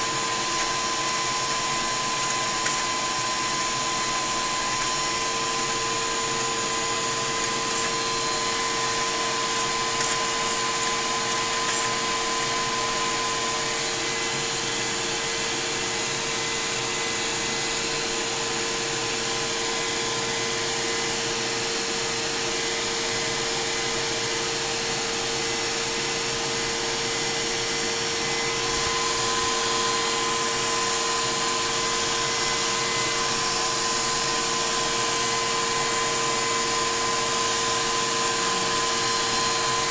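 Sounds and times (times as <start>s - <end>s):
model steam engine whirring: 0.0s - 14.0s.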